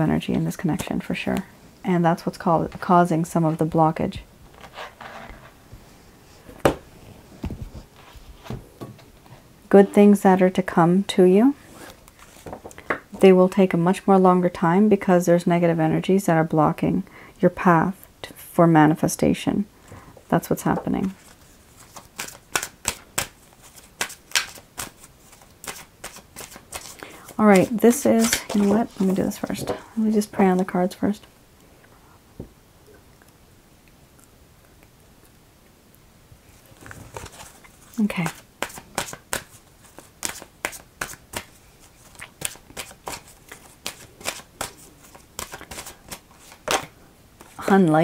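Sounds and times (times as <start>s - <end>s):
cards being shuffled: 21.0s - 29.8s, 36.8s - 47.7s.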